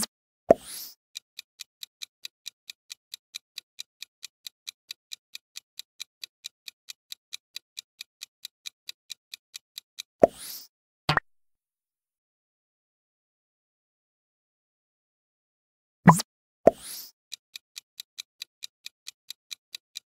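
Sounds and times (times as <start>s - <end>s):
fast clock ticking: 1.2s - 10.1s, 17.3s - 20.0s.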